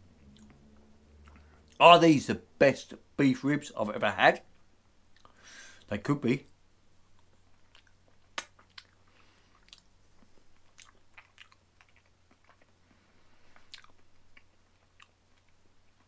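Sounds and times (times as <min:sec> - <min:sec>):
person chewing: 0:00.2 - 0:01.8, 0:05.1 - 0:05.4, 0:07.0 - 0:16.0.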